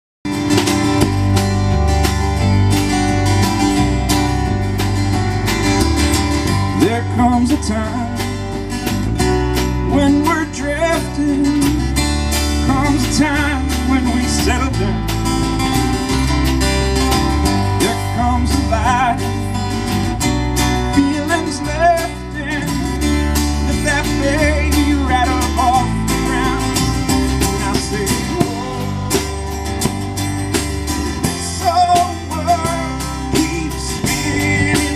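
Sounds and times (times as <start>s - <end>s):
live country band playing: 0.2s - 34.9s
man singing: 6.6s - 8.7s, 9.8s - 15.2s, 17.7s - 19.7s, 20.8s - 29.8s, 31.2s - 34.9s.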